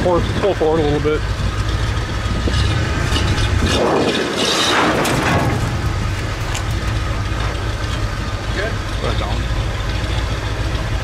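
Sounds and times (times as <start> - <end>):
truck engine running: 0.0 - 11.0
load scraping out of truck box: 3.0 - 7.1.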